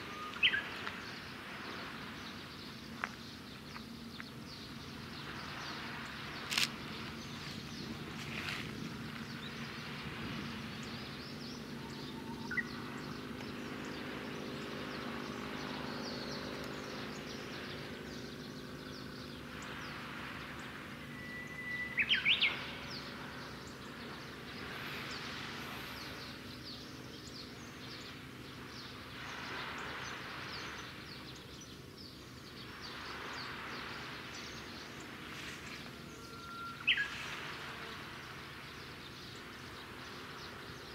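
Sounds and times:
bird calling: 0:00.0 - 0:01.0, 0:10.7 - 0:14.0, 0:21.0 - 0:23.6, 0:35.9 - 0:37.8
ship engine drone: 0:00.0 - 0:40.9.

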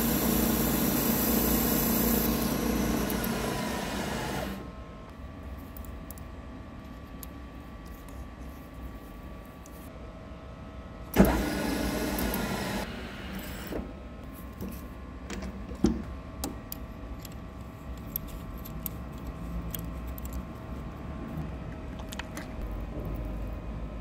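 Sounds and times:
loud whir or hiss: 0:00.0 - 0:04.7, 0:11.2 - 0:13.9.

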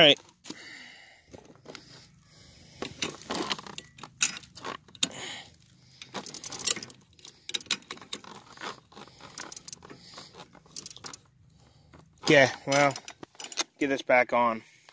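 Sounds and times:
metal chain clinking and rattling: 0:02.8 - 0:05.1, 0:06.0 - 0:11.3, 0:12.3 - 0:13.9.

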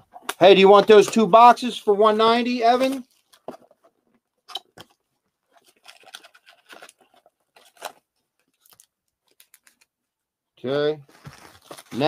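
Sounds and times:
foil wrappers crinkling: 0:05.6 - 0:09.9, 0:11.1 - 0:12.0.

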